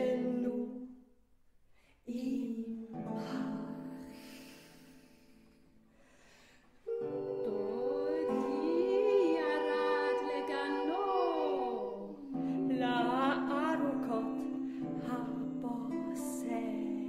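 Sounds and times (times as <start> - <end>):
women singing held chords: 6.8 - 17.0.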